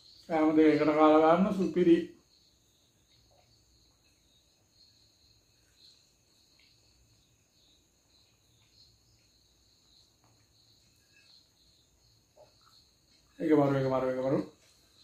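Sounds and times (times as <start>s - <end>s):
crickets chirring: 0.0s - 15.0s
soft clicks of eating off plates: 8.2s - 11.5s.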